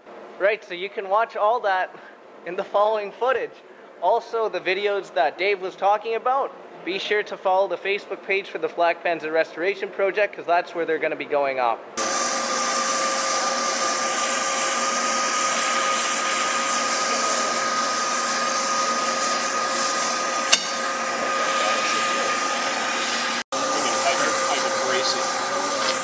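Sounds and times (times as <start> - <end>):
gas torch flame hissing: 12.0 - 26.0.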